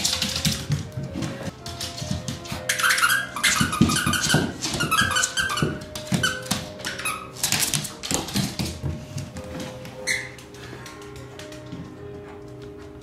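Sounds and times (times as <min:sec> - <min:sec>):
dog squeaks: 0:02.7 - 0:07.4, 0:10.0 - 0:10.4.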